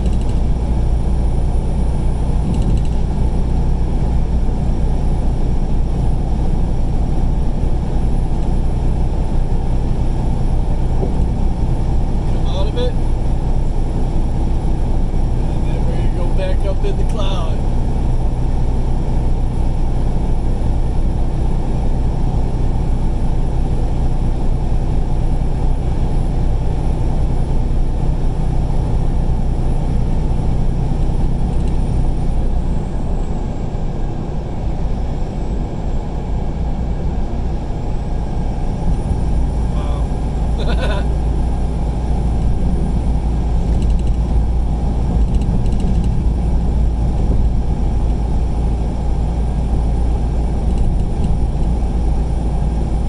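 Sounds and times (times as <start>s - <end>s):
truck engine and road noise: 0.0s - 53.0s.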